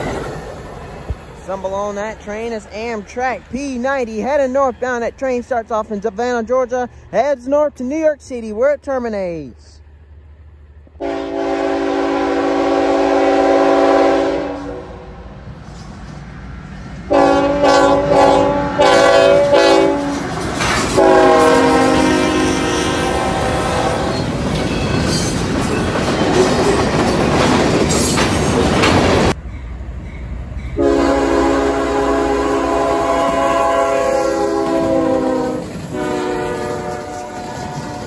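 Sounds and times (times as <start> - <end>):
locomotive air horn chord: 11.0 - 15.1, 17.1 - 20.2, 21.0 - 24.2, 30.8 - 38.0.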